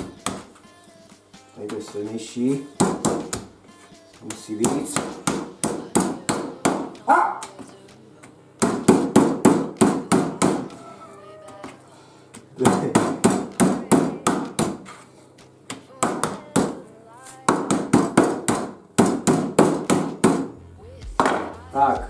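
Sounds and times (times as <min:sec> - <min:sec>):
mallet pounding meat: 0:02.8 - 0:03.5, 0:08.6 - 0:10.8, 0:12.6 - 0:14.8, 0:17.5 - 0:20.5
dog whining: 0:10.7 - 0:11.7.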